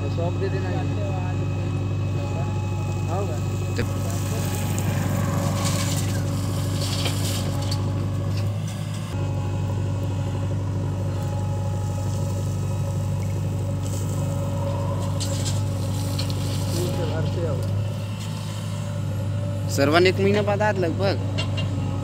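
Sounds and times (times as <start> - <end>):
diesel engine under hydraulic load: 0.0 - 22.0
soil pouring into steel truck body: 4.0 - 7.8.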